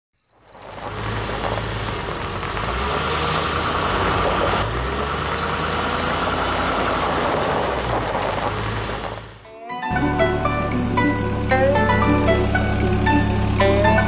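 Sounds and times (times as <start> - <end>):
crickets chirping: 0.2 - 7.0.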